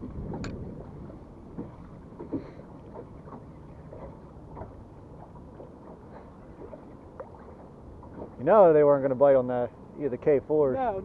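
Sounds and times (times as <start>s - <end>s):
low wind rumble on microphone: 0.0s - 8.5s
water slapping boat hull: 0.0s - 11.0s.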